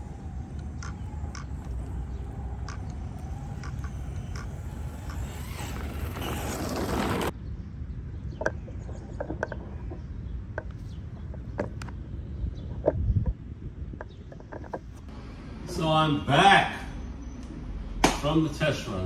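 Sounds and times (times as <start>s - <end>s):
rc truck motor and tyres on dirt: 0.0s - 7.4s
light clicks and chirps: 0.4s - 5.6s.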